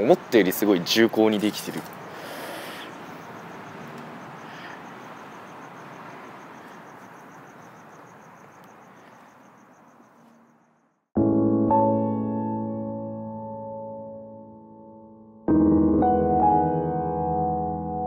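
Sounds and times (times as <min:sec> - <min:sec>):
steady background hiss: 0:00.0 - 0:10.1
cricket chirping: 0:00.0 - 0:11.2.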